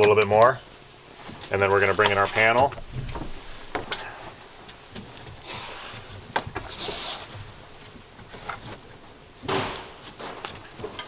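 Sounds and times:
fabric panel scuffing and rustling: 0:01.2 - 0:03.9.

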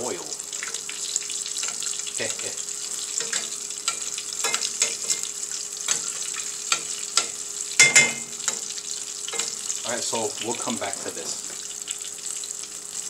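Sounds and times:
chicken sizzling in hot oil: 0:00.0 - 0:13.0
metal spoon clinking on pan: 0:03.2 - 0:05.3, 0:05.9 - 0:08.7, 0:09.3 - 0:09.6.

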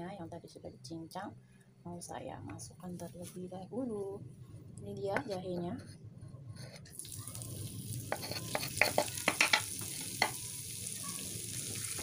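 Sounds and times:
ginger sizzling in hot oil: 0:06.9 - 0:12.0
oil popping and crackling: 0:06.9 - 0:12.0.

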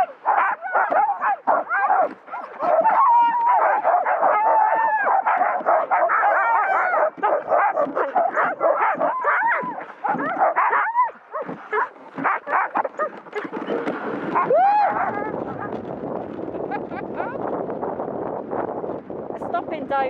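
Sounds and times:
dogs barking and yelping: 0:00.0 - 0:15.8.

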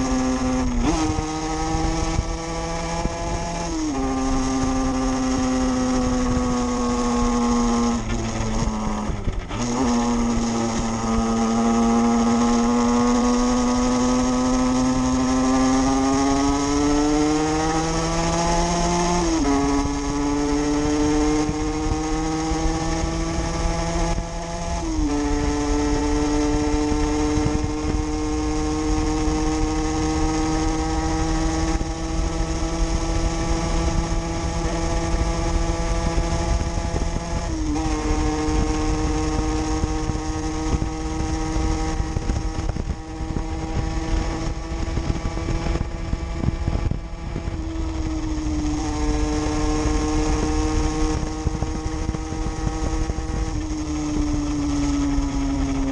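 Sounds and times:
motorcycle engine shifting gears: 0:00.0 - 0:55.9
wind and road noise: 0:00.0 - 0:55.9.

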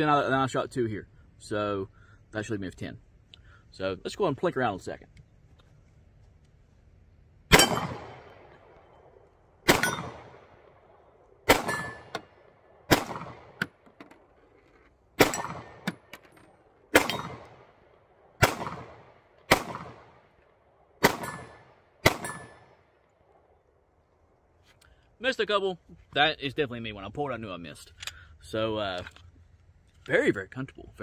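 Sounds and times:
bullet clanging on steel target: 0:07.5 - 0:08.0, 0:09.7 - 0:10.1, 0:11.6 - 0:12.3, 0:15.2 - 0:17.4, 0:21.2 - 0:21.6, 0:22.2 - 0:22.6
pistol shots: 0:07.5 - 0:08.8, 0:09.6 - 0:13.8, 0:15.2 - 0:16.1, 0:16.9 - 0:20.4, 0:21.0 - 0:22.8.

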